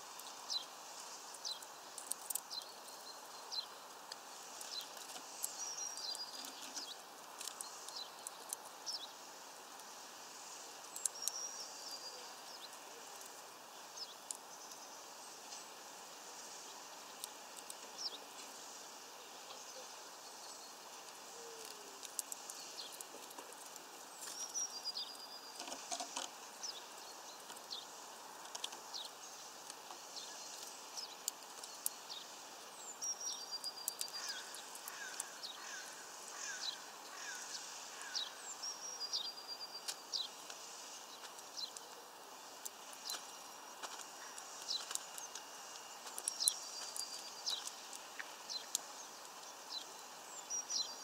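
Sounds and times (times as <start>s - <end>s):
birds pecking seeds: 0.0s - 51.0s
steady outdoor hiss: 0.0s - 51.0s.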